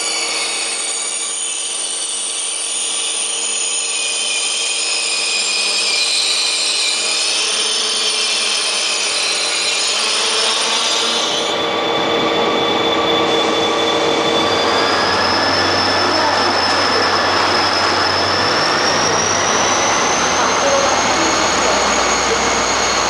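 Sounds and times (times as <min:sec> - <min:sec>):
high-pitched whine and squeal: 0:00.0 - 0:23.0
train cars rolling past: 0:09.9 - 0:23.0
steady rumble: 0:12.0 - 0:23.0.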